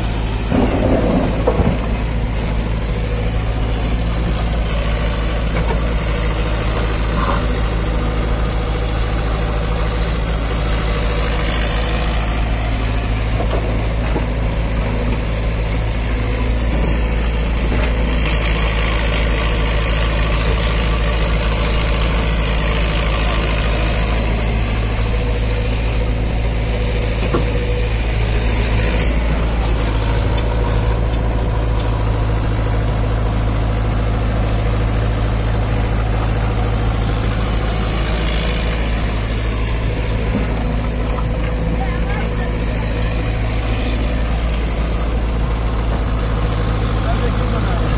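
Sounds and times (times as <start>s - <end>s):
excavator diesel engine running: 0.0s - 47.9s.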